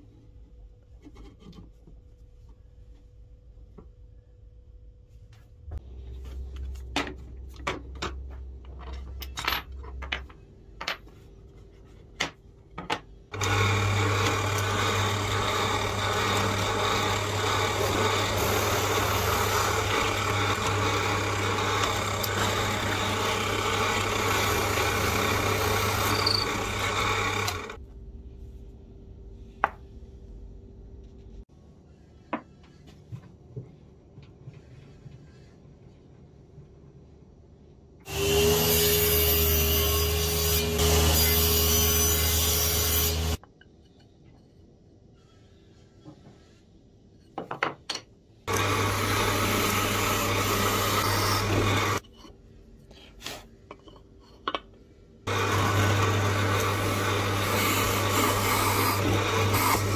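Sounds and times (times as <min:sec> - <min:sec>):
drill press boring wood: 0:13.3 - 0:27.8, 0:48.5 - 0:52.0, 0:55.3 - 0:59.9.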